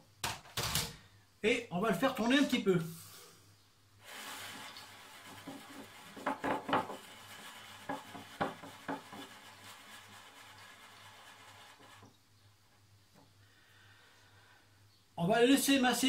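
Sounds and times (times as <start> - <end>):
glass jar scraping on worktop: 4.1 - 12.1.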